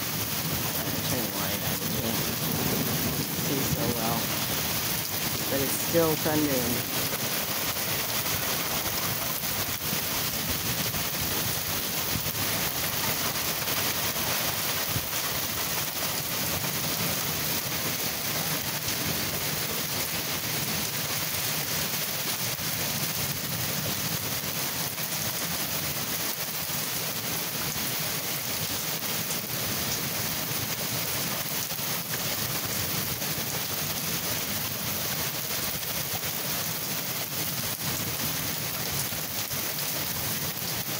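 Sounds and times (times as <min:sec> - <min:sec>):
heavy rain falling: 0:00.0 - 0:40.9
low rumble of thunder: 0:00.8 - 0:05.5.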